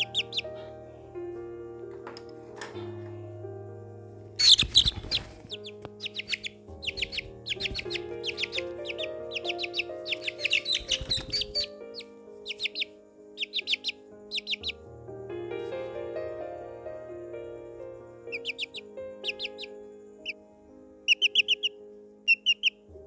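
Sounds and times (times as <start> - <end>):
small birds chirping: 0.0 - 0.8, 4.4 - 14.9, 17.8 - 23.0
slow sustained background music: 0.0 - 23.0.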